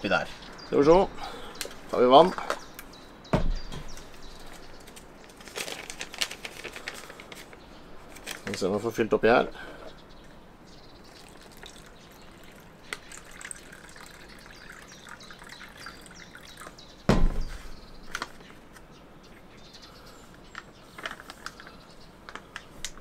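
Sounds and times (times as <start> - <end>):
loud thump: 3.3 - 3.9, 17.1 - 17.6
water pouring into pouch: 11.1 - 16.8.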